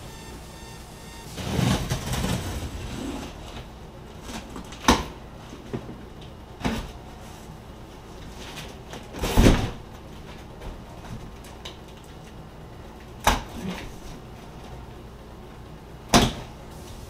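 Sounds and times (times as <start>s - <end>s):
cardboard rustling and scraping: 1.3s - 3.7s.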